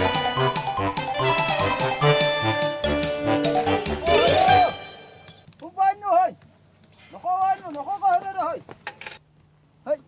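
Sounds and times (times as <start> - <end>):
playful comedy music with chimes: 0.0 - 5.4.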